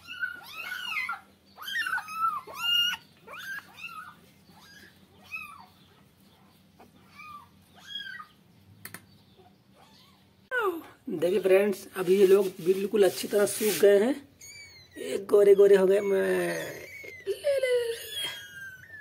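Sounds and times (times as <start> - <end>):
kittens mewing: 0.0 - 6.0, 14.3 - 19.0
towel rubbing: 12.0 - 14.1.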